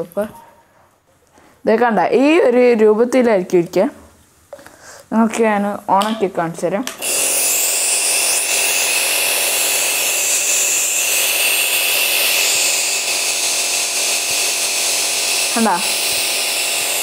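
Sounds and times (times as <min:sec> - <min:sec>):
nebulizer motor buzzing: 0:07.0 - 0:17.0.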